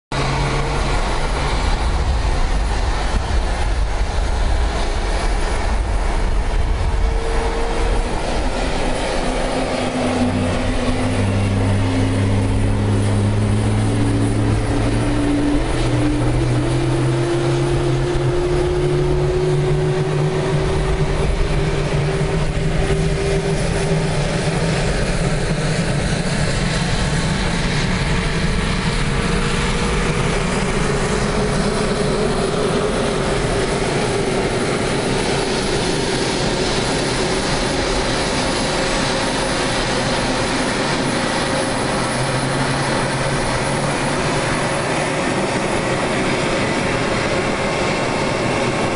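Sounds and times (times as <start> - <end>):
jet turbines running: 0.1 - 48.9
turbine whine rising in pitch: 0.2 - 48.9.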